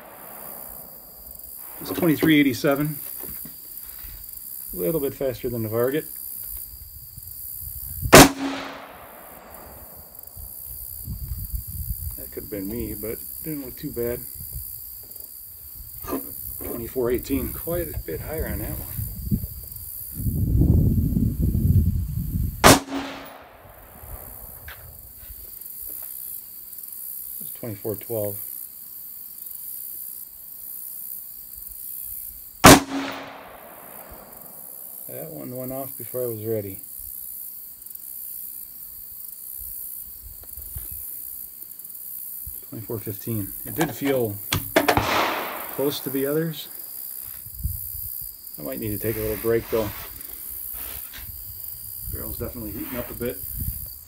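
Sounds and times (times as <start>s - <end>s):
rifle shot: 0.0s - 0.8s, 8.1s - 9.9s, 22.6s - 24.4s, 32.6s - 34.5s, 44.5s - 46.4s
insects buzzing: 0.0s - 54.0s.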